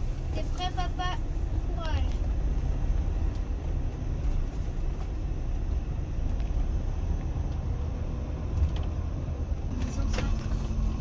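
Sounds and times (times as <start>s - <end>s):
motorhome engine rumble: 0.0s - 11.0s.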